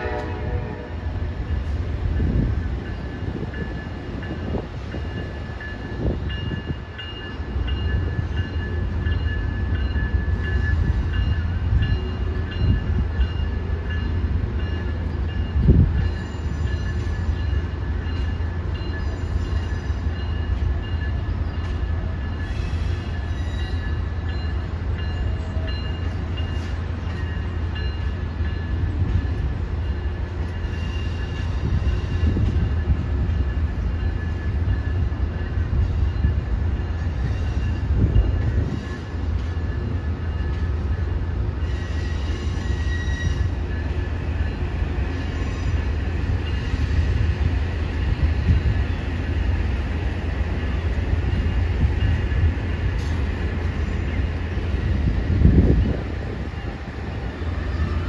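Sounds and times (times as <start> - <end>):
train wheels rumbling: 0.0 - 58.0.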